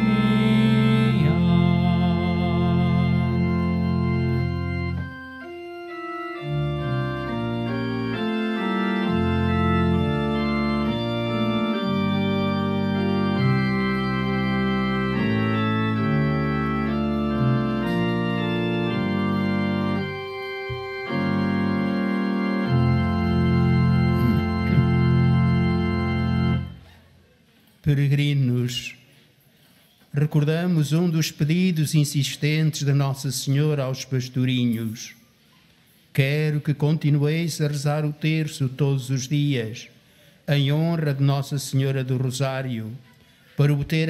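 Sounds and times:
organ playing slow chords: 0.0 - 27.0.

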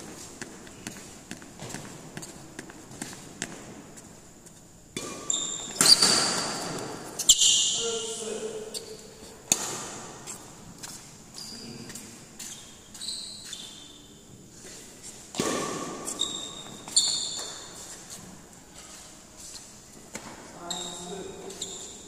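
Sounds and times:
court shoes squeaking: 0.0 - 22.0
rackets striking shuttlecock: 4.9 - 7.8, 9.4 - 10.2, 15.3 - 17.7.

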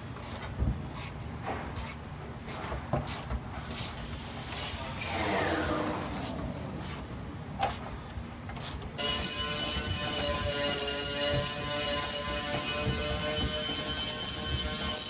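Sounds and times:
low shop hum: 0.0 - 15.0
falling whine: 5.0 - 7.6
wrench clicks and knocks: 9.0 - 12.4, 13.9 - 15.0.

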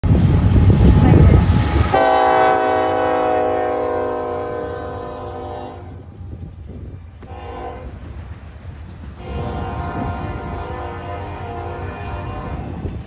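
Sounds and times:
rumble of passing rail cars: 0.0 - 13.0
locomotive air horn: 1.5 - 6.1, 7.2 - 8.0, 9.2 - 12.9.

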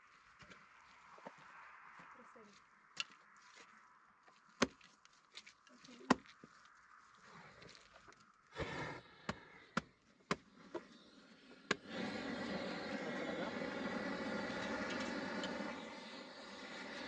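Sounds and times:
gas torch roaring: 8.6 - 17.0.

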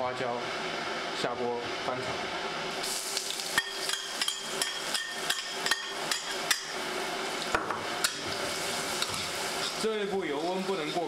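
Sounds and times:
oil sizzling: 2.2 - 11.0.

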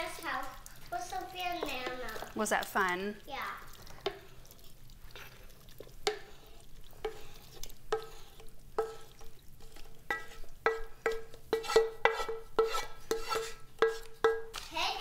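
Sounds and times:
spatula scraping metal pan: 3.7 - 15.0.

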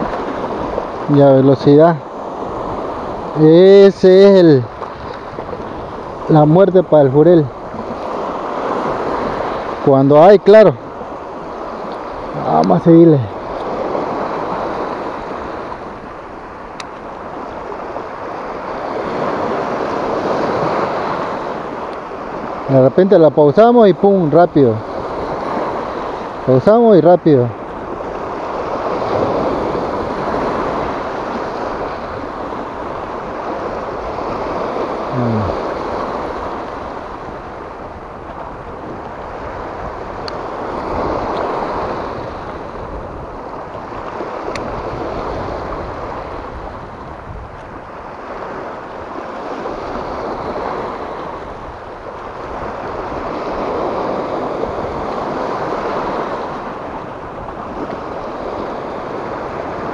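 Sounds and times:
waves breaking on rocky shore: 0.0 - 59.9.

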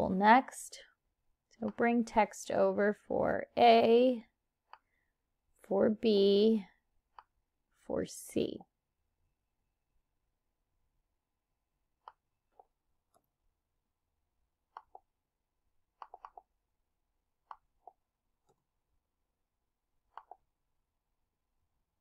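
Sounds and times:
mouse clicks: 16.0 - 16.5, 20.1 - 20.4.

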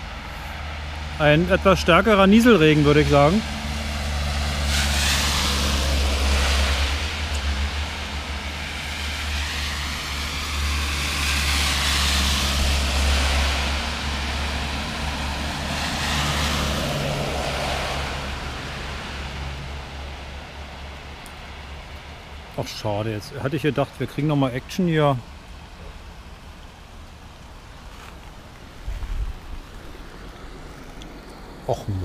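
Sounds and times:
tyre hiss on wet road: 0.0 - 1.2, 2.6 - 22.8
low engine rumble: 25.4 - 32.0.

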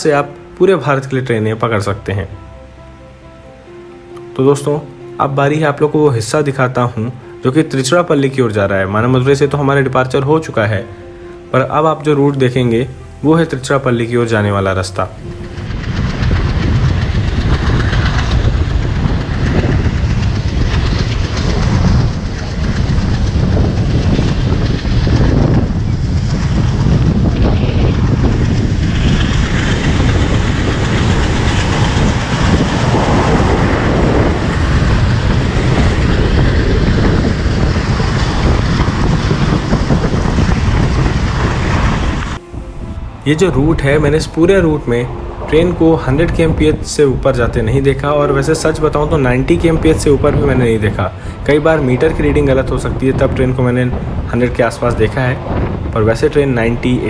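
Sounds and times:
rush of air: 10.8 - 11.5, 15.0 - 57.0
train wheels rattling on rails: 13.7 - 42.4.

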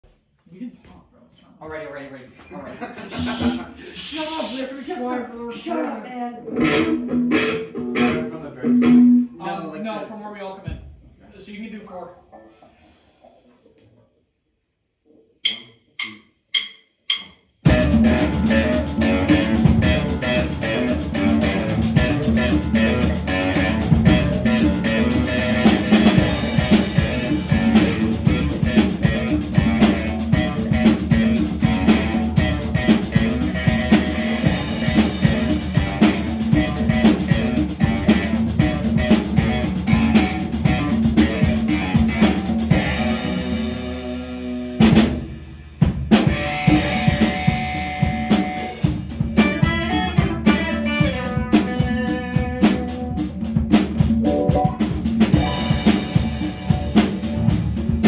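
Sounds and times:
rock band playing: 6.5 - 9.4, 17.6 - 58.0
electric guitar lines: 6.5 - 9.5, 17.7 - 44.8, 46.2 - 53.4, 54.3 - 58.0
drum rimshots: 15.4 - 44.0, 44.8 - 58.0.

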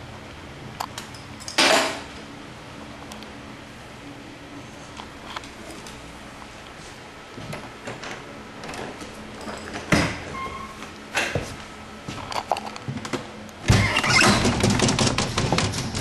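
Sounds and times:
metal doorknob rattling: 13.7 - 16.0.

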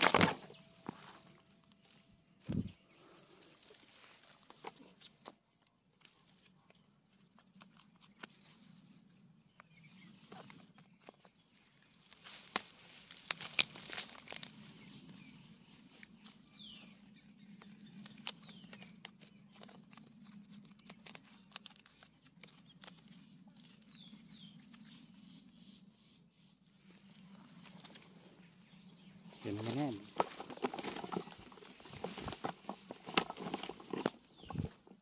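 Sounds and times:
sharp clicks and rustles: 17.6 - 23.8, 29.6 - 35.0.

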